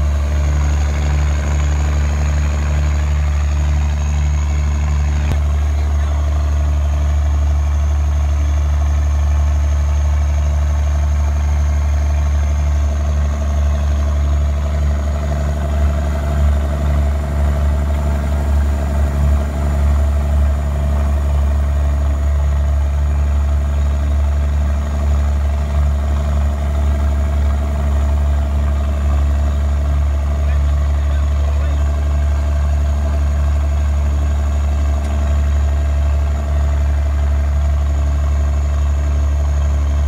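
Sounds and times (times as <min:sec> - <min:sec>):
high engine whine: 0:00.0 - 0:40.0
truck diesel engine drone: 0:00.0 - 0:40.0.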